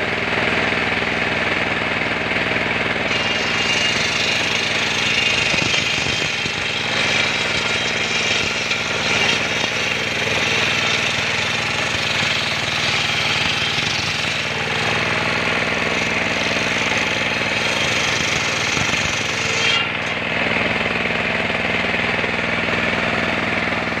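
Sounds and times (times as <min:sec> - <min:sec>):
saw bench cutting timber: 0:00.0 - 0:24.0
high hissing of saw: 0:03.1 - 0:20.1.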